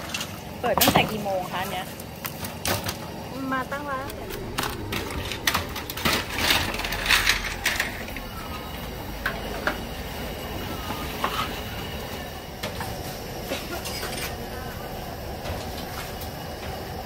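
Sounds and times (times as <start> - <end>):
steady rushing noise: 3.1 - 13.5.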